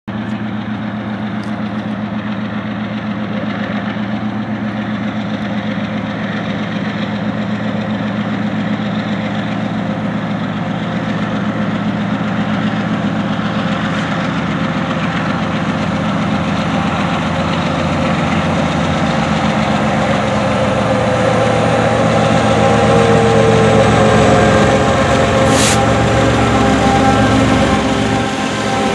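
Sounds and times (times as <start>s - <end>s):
diesel locomotive engines droning: 0.1s - 28.9s.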